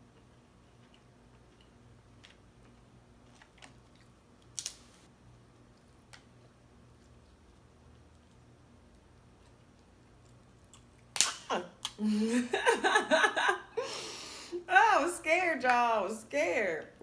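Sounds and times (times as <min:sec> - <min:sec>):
crab leg cracking: 0:03.2 - 0:05.0.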